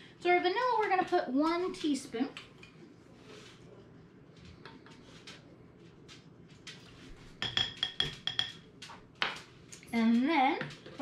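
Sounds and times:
spoon clinking against bowl: 7.4 - 8.6.

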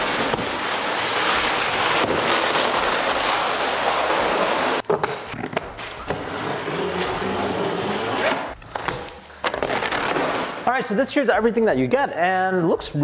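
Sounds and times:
cardboard box scraping on concrete: 0.0 - 4.8, 5.8 - 8.6, 9.5 - 10.6.

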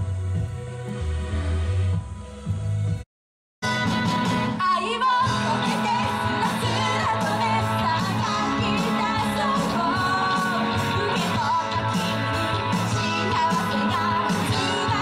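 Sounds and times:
drums: 0.0 - 3.0, 3.6 - 15.0
electric guitars: 3.6 - 15.0
keyboard: 3.6 - 15.0
person singing: 4.6 - 15.0.

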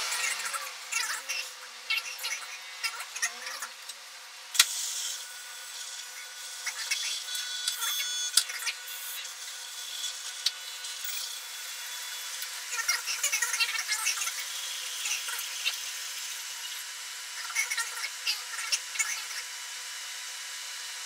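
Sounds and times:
servo motors whirring: 0.0 - 20.3
high motor whine: 0.0 - 21.0.

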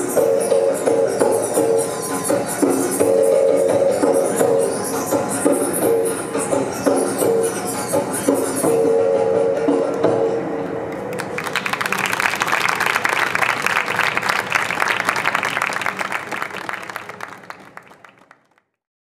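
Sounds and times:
music: 0.0 - 18.7
audience applauding: 10.9 - 18.6.

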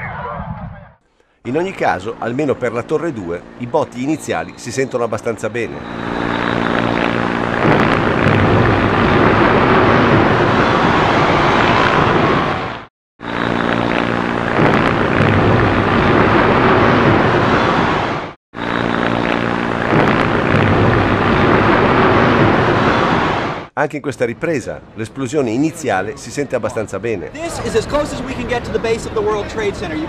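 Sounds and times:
steady engine drone: 1.2 - 12.6, 13.2 - 23.3, 24.0 - 30.0
loud sustained blast noise: 1.5 - 23.7.

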